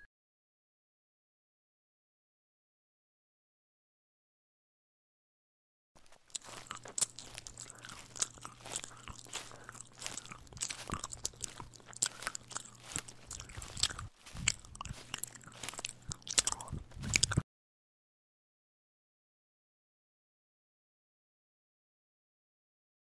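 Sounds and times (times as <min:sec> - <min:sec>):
horse chewing grass: 0:06.0 - 0:17.4.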